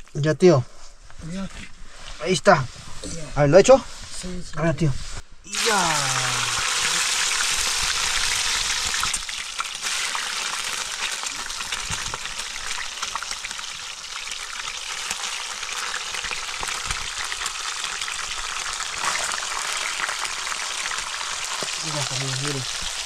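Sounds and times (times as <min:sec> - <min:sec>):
fish sizzling in hot oil: 0:05.5 - 0:23.0.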